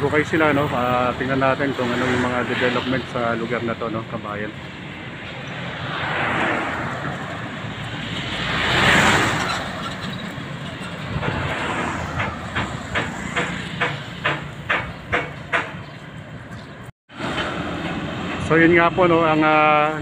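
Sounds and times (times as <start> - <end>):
road traffic passing: 0.0 - 20.0
regular sharp clacking: 11.1 - 15.8.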